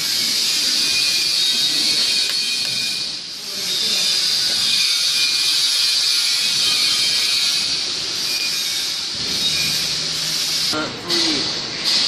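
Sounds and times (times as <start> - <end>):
faint whining tones: 0.2 - 11.6
machinery hissing: 3.2 - 12.0.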